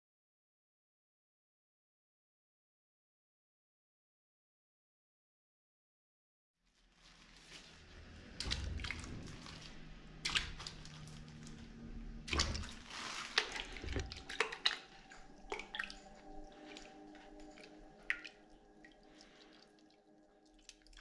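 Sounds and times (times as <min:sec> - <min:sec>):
cloth splashing in bucket of water: 0:07.0 - 0:19.7.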